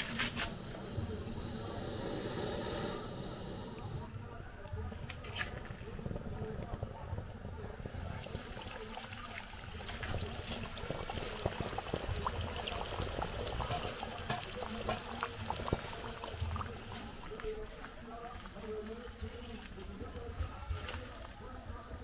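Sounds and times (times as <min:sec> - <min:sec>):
food frying in oil: 0:07.8 - 0:22.0.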